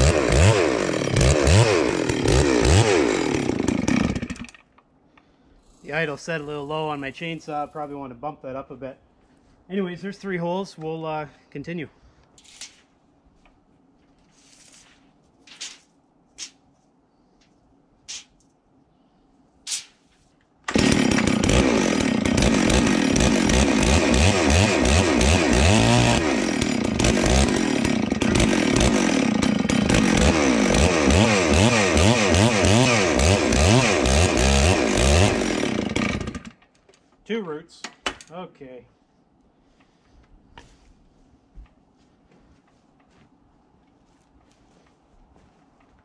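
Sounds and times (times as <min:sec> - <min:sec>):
chainsaw engine driving auger: 0:00.0 - 0:04.6, 0:20.7 - 0:36.6.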